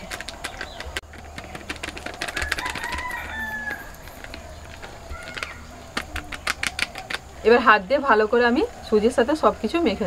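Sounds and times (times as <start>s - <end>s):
hens clucking: 0.0s - 7.6s
rooster crowing: 2.2s - 5.7s.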